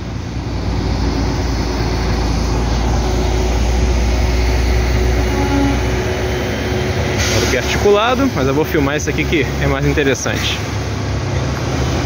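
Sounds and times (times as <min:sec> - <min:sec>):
buses passing by: 0:00.0 - 0:12.0
road noise: 0:00.0 - 0:12.0.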